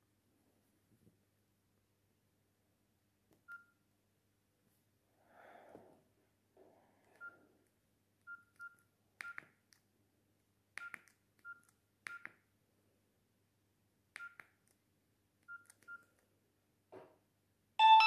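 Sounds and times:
bright ringtone melody: 17.8 - 18.0
phone keypad beeps: 17.8 - 18.0.

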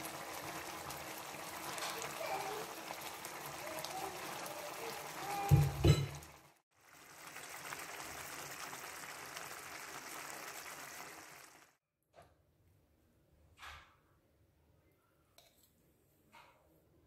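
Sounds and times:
sauce bubbling in a pan: 0.0 - 11.8.

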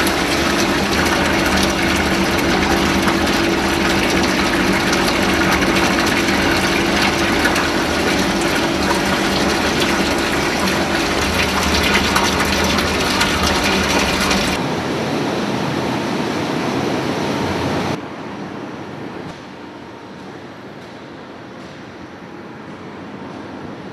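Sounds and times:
oil pouring into metal tank: 0.0 - 14.6
machine hum: 0.0 - 15.1.

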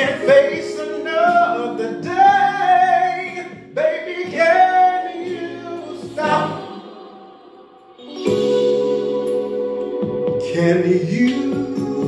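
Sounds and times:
man singing: 0.0 - 6.8, 10.4 - 12.0
backing track music: 0.0 - 12.0.

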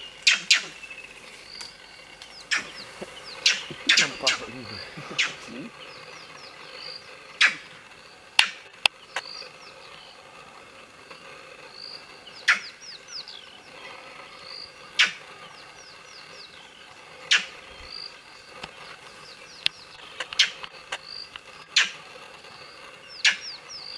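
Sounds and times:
high falling bird chirps: 0.0 - 10.5
monkey alarm calls: 2.3 - 7.8, 12.4 - 12.9, 14.9 - 16.1, 17.3 - 17.6, 21.7 - 22.1
sharp clicks: 8.4 - 9.4.

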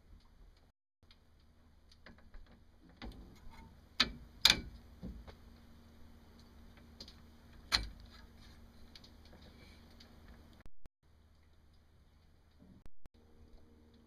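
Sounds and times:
light clicks of metal parts: 6.3 - 10.6.

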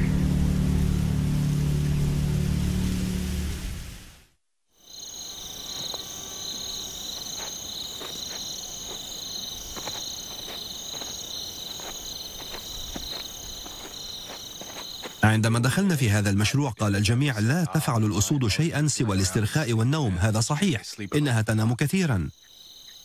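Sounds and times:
crickets trilling: 4.8 - 15.4, 20.3 - 23.0.

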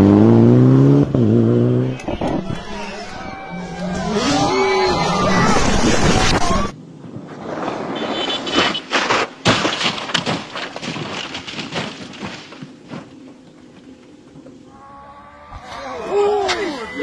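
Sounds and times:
car crashing and rolling: 1.9 - 13.1.

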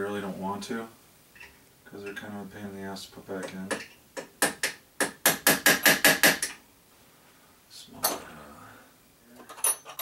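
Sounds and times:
small metal parts clinking: 9.4 - 10.0.

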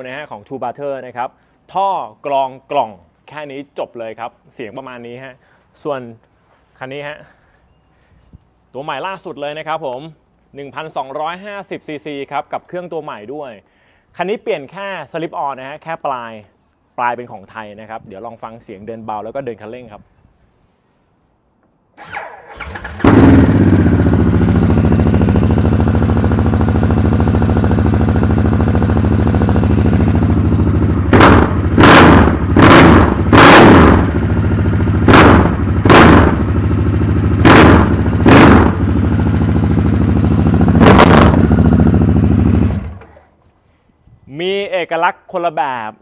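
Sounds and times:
motorcycle engine starting and idling: 22.0 - 43.4
motorcycle throttle blips: 22.6 - 43.5.

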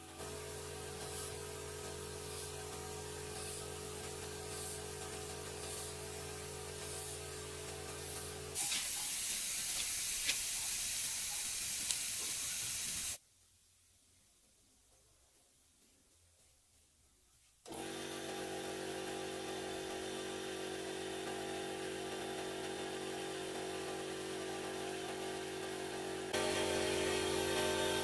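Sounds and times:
spray gun hissing: 0.2 - 13.2.

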